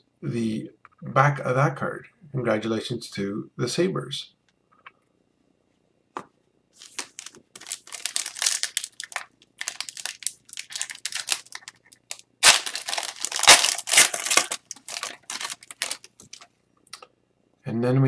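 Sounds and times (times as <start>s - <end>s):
foil wrapper crinkling: 6.8s - 16.5s.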